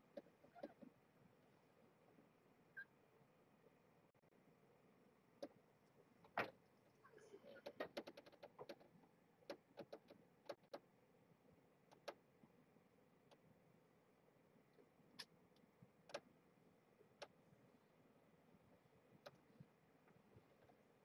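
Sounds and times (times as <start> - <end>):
faint clicks and ticks: 5.2 - 17.9, 18.5 - 21.0.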